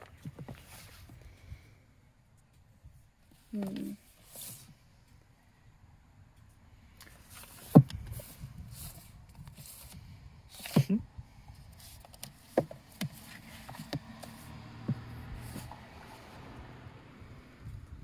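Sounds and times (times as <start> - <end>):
books sliding and rustling: 7.2 - 11.0, 11.8 - 16.4
books knocking on wooden shelf: 12.6 - 15.7.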